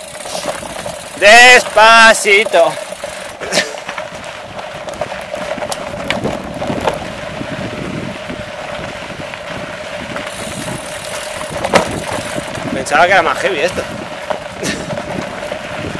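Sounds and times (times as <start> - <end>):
bicycle tyres on dirt: 0.0 - 15.9
stones clicking and bike rattling: 0.0 - 15.9
wind rushing over microphone: 4.0 - 15.9.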